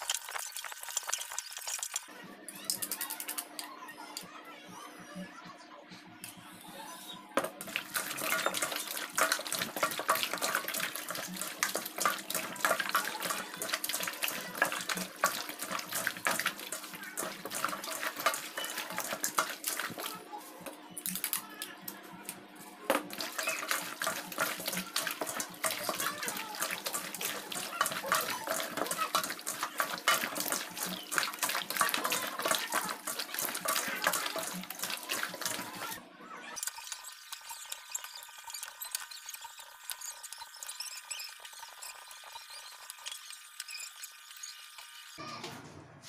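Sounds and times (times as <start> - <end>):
hands squelching raw chicken: 7.6 - 20.2, 22.9 - 36.0.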